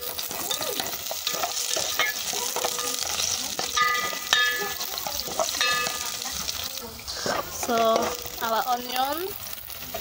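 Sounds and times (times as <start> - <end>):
onion sizzling in oil: 0.0 - 10.0
spatula scraping a metal pot: 0.1 - 6.2.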